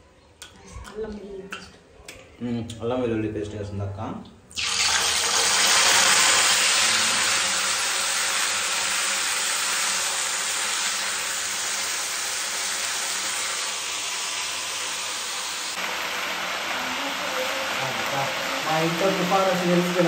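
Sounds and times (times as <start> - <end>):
paste sizzling in hot oil: 4.5 - 20.0.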